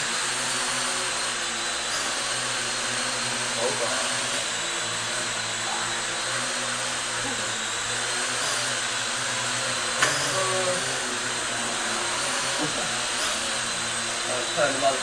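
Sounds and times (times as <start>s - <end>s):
drone rotors whirring: 0.0s - 15.0s.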